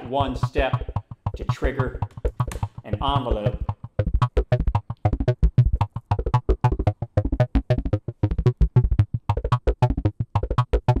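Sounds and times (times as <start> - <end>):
synthesizer bass: 0.0 - 11.0
synthesizer plucked notes: 0.0 - 11.0.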